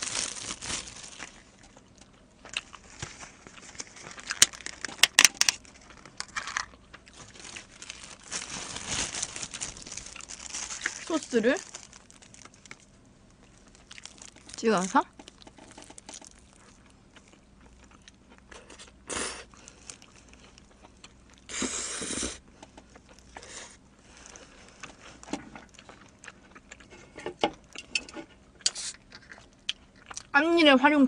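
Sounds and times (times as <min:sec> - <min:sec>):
chewing and biting pizza: 0:15.1 - 0:21.5, 0:22.6 - 0:27.8, 0:28.4 - 0:30.3.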